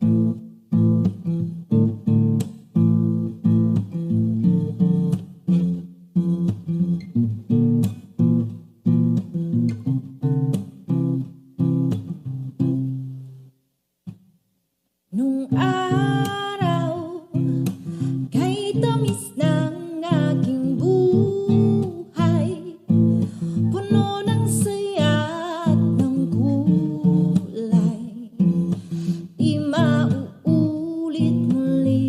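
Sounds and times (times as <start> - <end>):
acoustic guitar strumming: 0.0 - 13.5, 15.5 - 32.0
person singing: 15.1 - 32.0.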